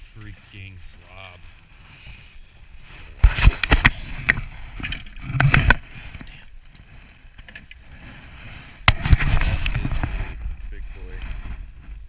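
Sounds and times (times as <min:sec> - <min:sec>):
sharp clicks and thumps: 0:03.2 - 0:06.4, 0:08.8 - 0:12.0.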